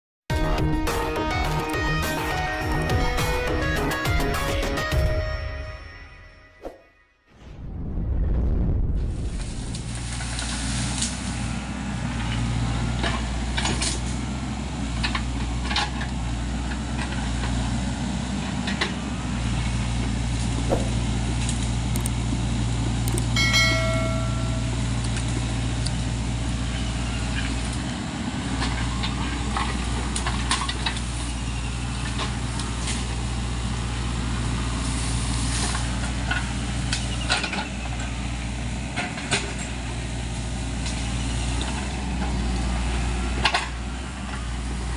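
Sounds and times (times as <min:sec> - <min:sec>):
excavator diesel engine running: 0:00.3 - 0:05.4, 0:09.4 - 0:44.9
track clanks: 0:23.1 - 0:25.5.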